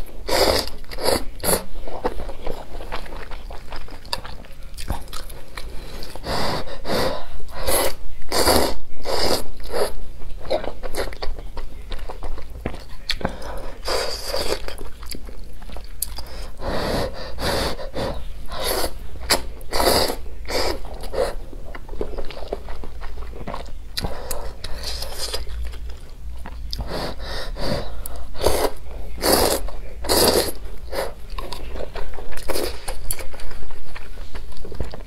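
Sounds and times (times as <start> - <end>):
wet chewing: 0.0 - 6.3, 9.1 - 35.0
person slurping noodles: 16.6 - 21.4, 26.7 - 31.2.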